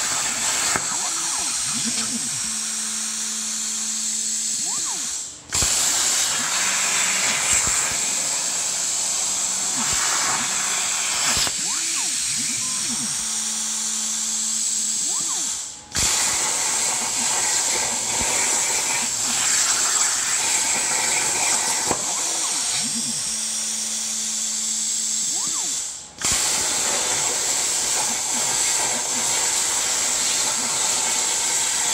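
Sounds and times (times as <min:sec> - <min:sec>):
gantry motors whining: 0:00.0 - 0:31.9
plasma cutter arc hissing: 0:00.0 - 0:31.9.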